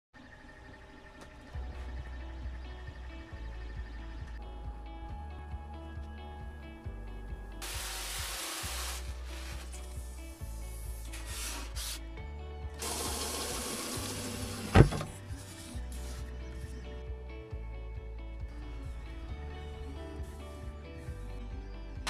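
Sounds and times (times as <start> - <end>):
background music: 1.0 - 22.0
tape rubbing scratchily: 8.6 - 12.0, 15.0 - 16.4
dull thud: 14.7 - 15.2.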